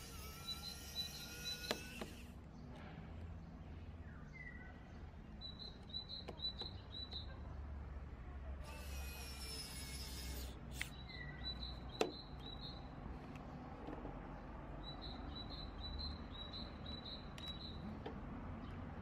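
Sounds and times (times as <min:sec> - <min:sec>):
small bird chirping: 0:00.0 - 0:02.7, 0:04.0 - 0:07.5, 0:09.2 - 0:13.6, 0:14.4 - 0:18.0.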